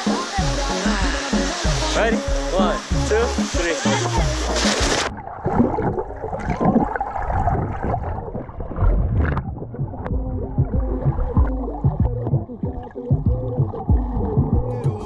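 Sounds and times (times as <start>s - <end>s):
bright splash rush: 0.0s - 5.1s
muffled underwater sloshing: 3.6s - 14.9s.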